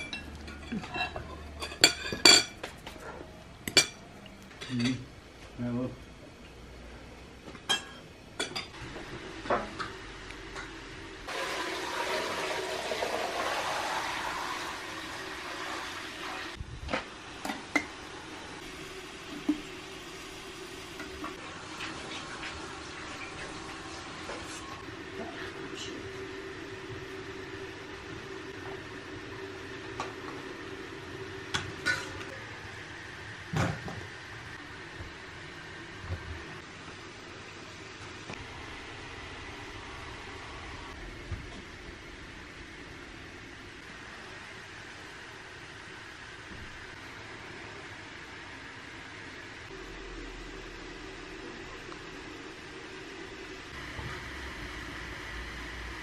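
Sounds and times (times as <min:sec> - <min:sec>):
steel pots clinking: 0:00.0 - 0:02.6
water pouring into metal vessel: 0:11.3 - 0:16.5
low hum: 0:49.6 - 0:56.0.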